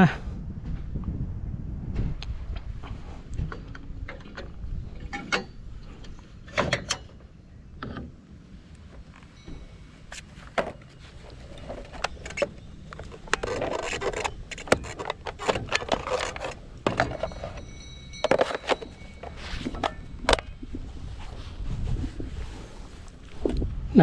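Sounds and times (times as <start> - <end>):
plastic scraping on plastic: 10.6 - 17.6.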